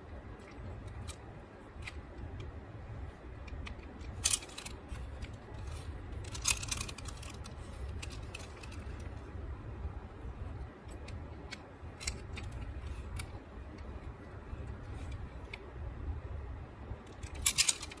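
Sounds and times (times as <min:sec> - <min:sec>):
low hum: 0:00.0 - 0:18.0
toy cars clicking and clattering: 0:00.4 - 0:02.5, 0:03.3 - 0:09.2, 0:10.8 - 0:14.0, 0:17.0 - 0:18.0.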